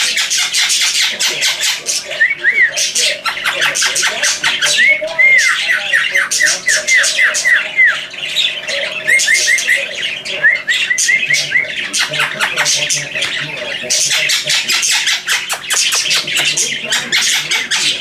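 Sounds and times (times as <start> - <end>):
parakeet squawking: 0.0 - 18.0.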